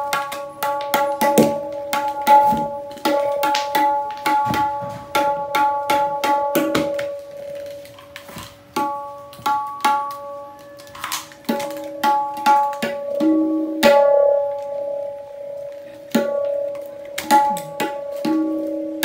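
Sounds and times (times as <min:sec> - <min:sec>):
tabla drum strokes: 0:00.0 - 0:19.0.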